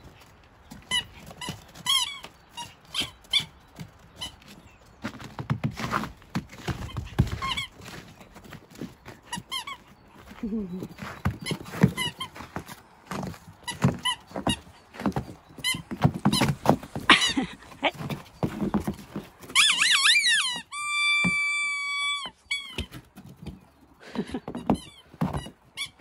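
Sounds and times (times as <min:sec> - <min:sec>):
squeaky toy squeaking: 0:00.8 - 0:03.6, 0:04.2 - 0:04.4, 0:06.8 - 0:07.8, 0:09.3 - 0:09.9, 0:11.4 - 0:12.4, 0:15.6 - 0:16.5, 0:19.5 - 0:23.0.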